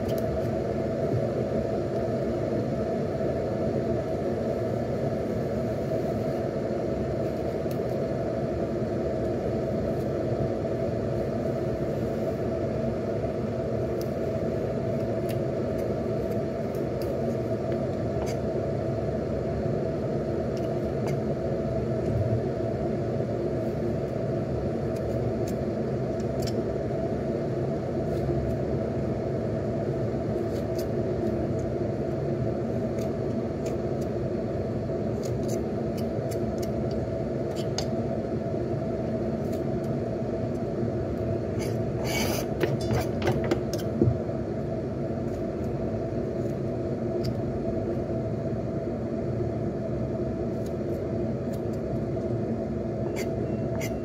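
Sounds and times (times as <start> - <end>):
steady low hum: 0.0 - 54.0
knife scraping a carrot: 41.6 - 43.9, 53.0 - 54.0.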